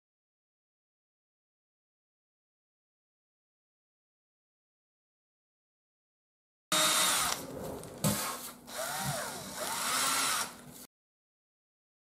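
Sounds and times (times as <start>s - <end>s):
power drill boring into foam: 6.7s - 10.6s.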